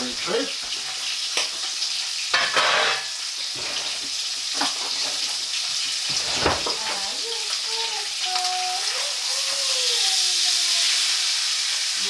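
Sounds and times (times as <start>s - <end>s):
fish frying in butter sizzling: 0.0s - 12.0s
scrapes and knocks in pan: 2.3s - 5.3s.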